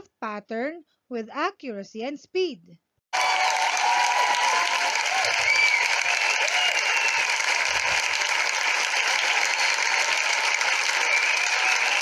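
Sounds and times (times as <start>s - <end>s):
crowd applauding: 3.1s - 12.0s
high cheers: 3.1s - 12.0s.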